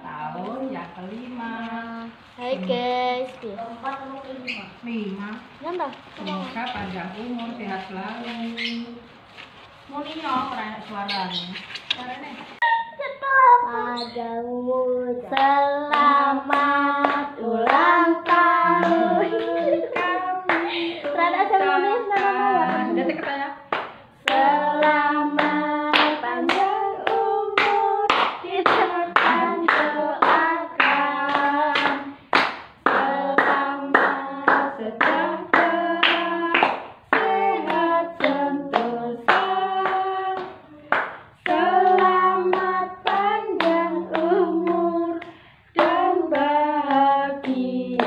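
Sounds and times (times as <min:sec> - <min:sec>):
group singing birthday song: 0:00.0 - 0:48.0.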